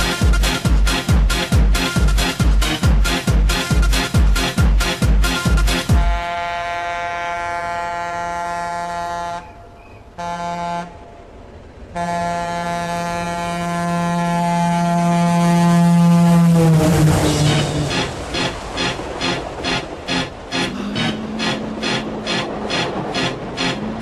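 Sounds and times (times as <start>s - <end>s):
techno beat: 0.0s - 6.1s.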